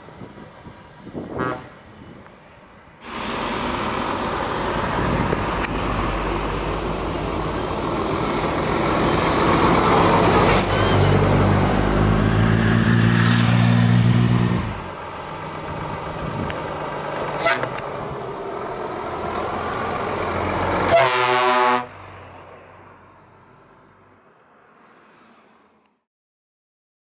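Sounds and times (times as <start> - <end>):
truck engines and road noise: 0.0 - 26.0
truck air horn blast: 1.3 - 1.8, 17.4 - 17.8, 20.8 - 22.0
short horn toot: 17.4 - 17.8, 20.9 - 21.9.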